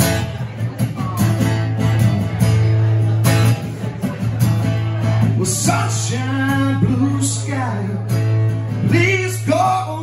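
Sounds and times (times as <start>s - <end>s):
acoustic and electric guitars: 0.0s - 10.0s
man singing: 5.0s - 10.0s.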